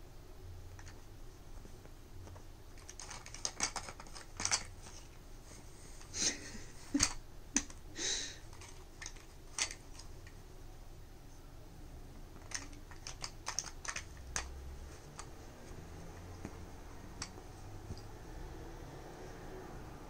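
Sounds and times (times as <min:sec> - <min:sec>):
plastic feeder clicking: 0:12.4 - 0:15.3.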